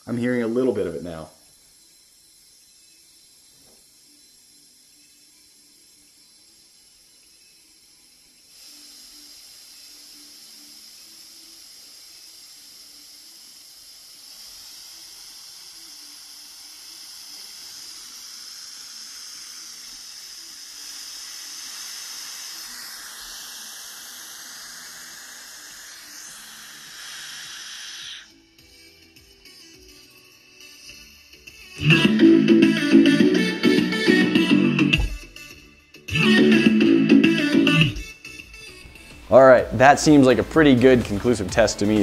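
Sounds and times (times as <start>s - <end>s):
air hissing through valve: 0.0s - 28.9s.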